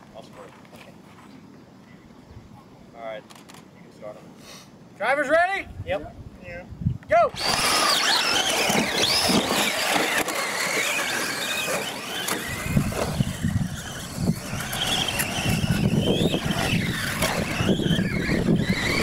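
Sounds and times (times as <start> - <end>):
rc truck motors whining: 7.3 - 19.0.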